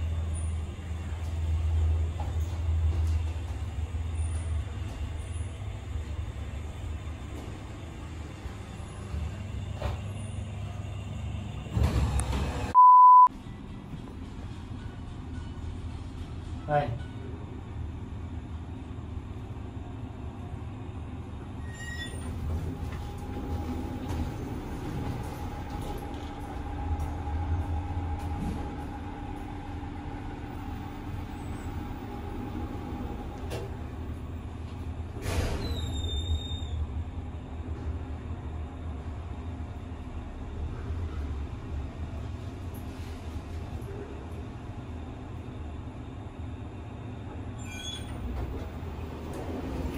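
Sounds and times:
elevator running rumble: 0:00.0 - 0:49.9
steady beep: 0:12.8 - 0:13.3.

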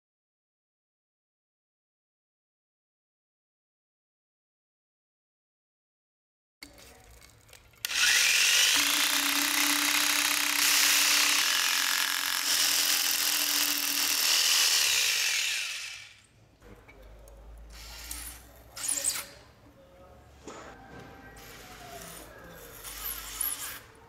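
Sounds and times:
power drill running: 0:07.8 - 0:16.2.

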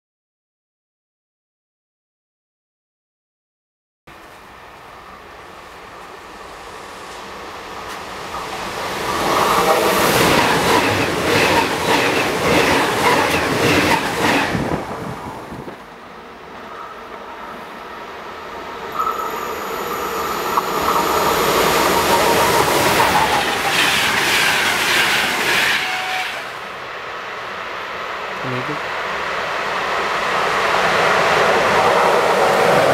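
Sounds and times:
steady train whine: 0:04.1 - 0:32.9
train passing at speed: 0:04.1 - 0:32.9
wheels clickety-clack: 0:07.8 - 0:14.6, 0:20.5 - 0:26.2.

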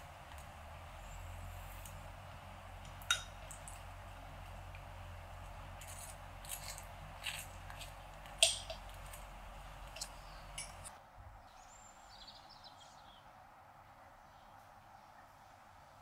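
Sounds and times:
knife scraping toast: 0:05.8 - 0:08.0.

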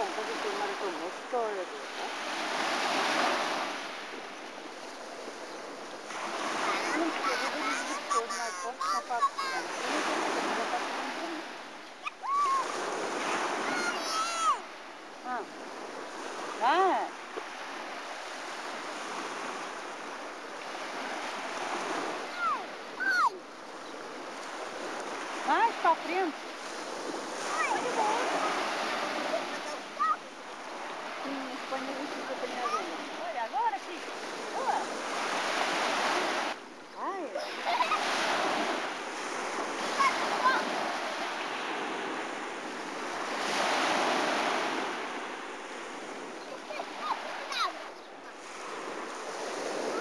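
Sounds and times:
sea surf: 0:00.0 - 0:50.0
wind: 0:00.0 - 0:50.0
short high cries: 0:12.0 - 0:12.7, 0:13.6 - 0:14.6.

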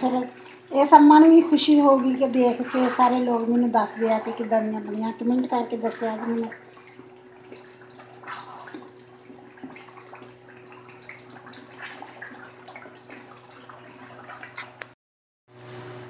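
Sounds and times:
curry sizzling and bubbling: 0:00.0 - 0:15.0
wooden spoon stirring and scraping: 0:01.3 - 0:14.8.

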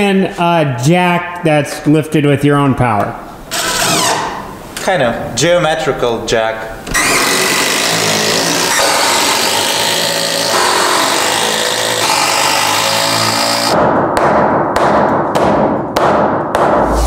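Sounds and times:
impact driver running: 0:07.0 - 0:13.8.

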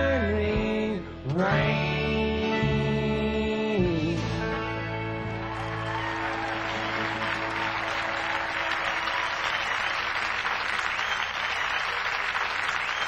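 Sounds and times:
audience applauding: 0:05.2 - 0:13.0.

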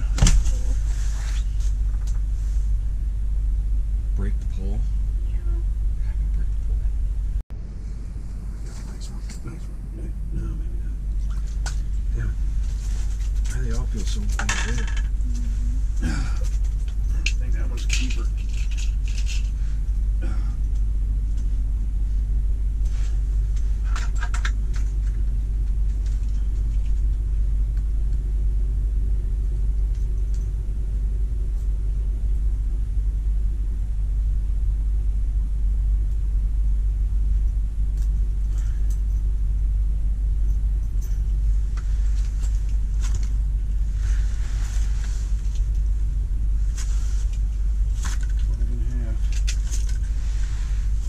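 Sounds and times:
low rumble: 0:00.0 - 0:51.0
gear rustling and clicking: 0:11.1 - 0:20.0, 0:22.8 - 0:27.9, 0:46.6 - 0:51.0.

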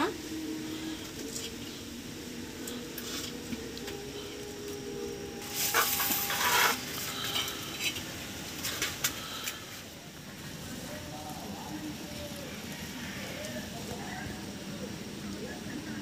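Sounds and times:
steel plate scraping on griddle: 0:05.4 - 0:09.8.

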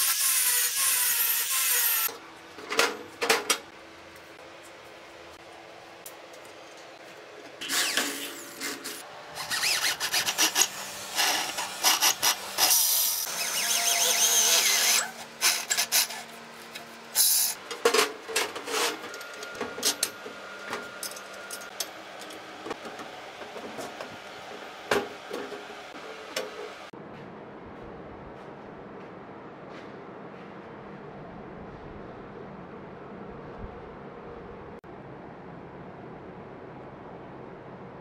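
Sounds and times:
electric drill grinding through steel: 0:00.0 - 0:02.1, 0:09.4 - 0:16.2.

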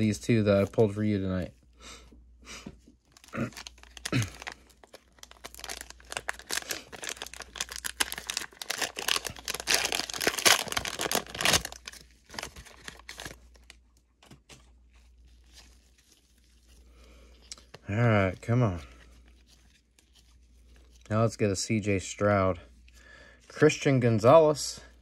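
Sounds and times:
wrapper crackling and tearing: 0:03.1 - 0:14.0, 0:15.0 - 0:18.4.

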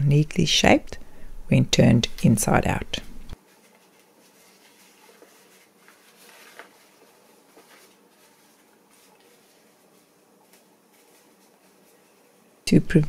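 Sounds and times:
fabric rustling: 0:03.3 - 0:12.7.

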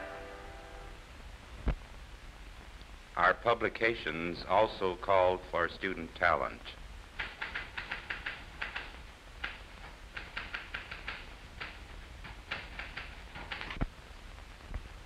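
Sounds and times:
typewriter keystroke clacks: 0:07.2 - 0:13.8.

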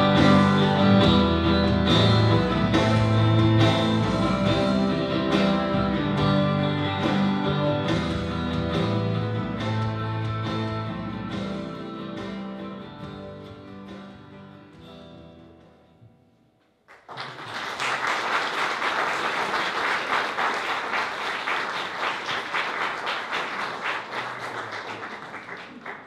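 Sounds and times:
electric guitar notes ringing: 0:00.0 - 0:15.6
audience applause: 0:16.9 - 0:26.0.

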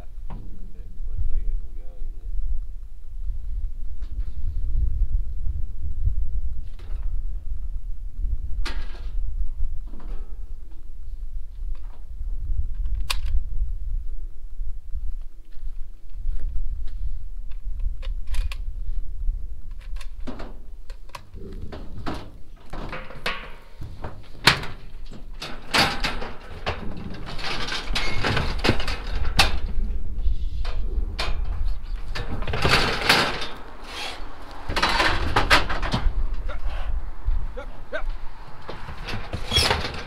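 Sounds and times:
steady low rumble: 0:00.0 - 0:22.7, 0:23.6 - 0:40.0
metal rattling: 0:21.3 - 0:36.7, 0:37.8 - 0:40.0
metal gates clanking: 0:21.6 - 0:29.8, 0:30.7 - 0:37.0, 0:37.8 - 0:40.0.

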